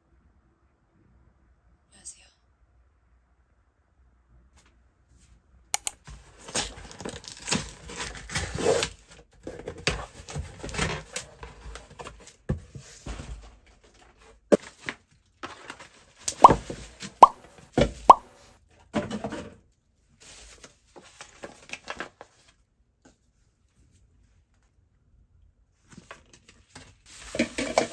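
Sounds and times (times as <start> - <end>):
sharp clicks: 5.8 - 6.0
cardboard ripping and rustling: 6.2 - 12.4.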